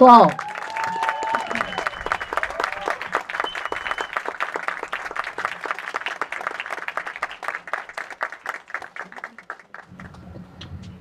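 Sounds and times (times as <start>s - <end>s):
crowd applauding: 0.0s - 10.8s.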